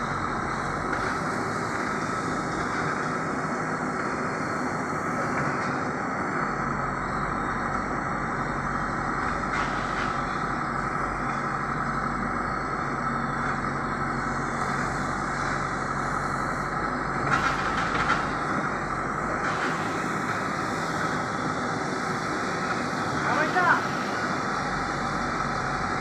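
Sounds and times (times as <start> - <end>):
diesel engine running: 0.0 - 26.0
backhoe digging soil: 9.2 - 12.2, 12.8 - 23.5.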